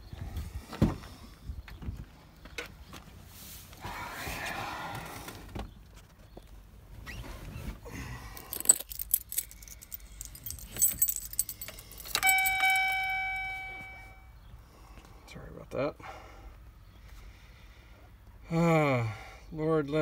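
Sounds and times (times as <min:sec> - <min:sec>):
keys jangling: 0:08.4 - 0:14.0
dashboard warning chime: 0:12.0 - 0:14.4.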